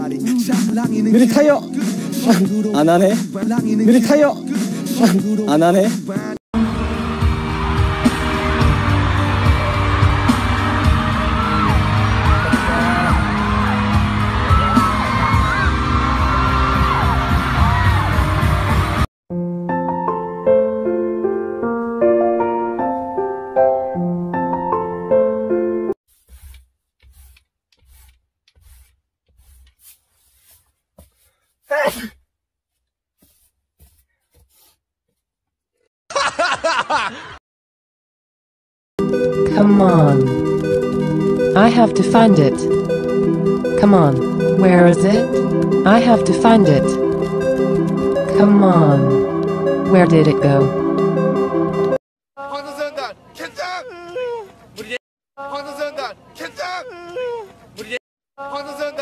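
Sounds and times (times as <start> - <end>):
amplified pop music: 0.0 - 19.0, 39.0 - 52.0
fans whooping and yelling: 6.9 - 19.0
man sneezing: 31.7 - 32.2.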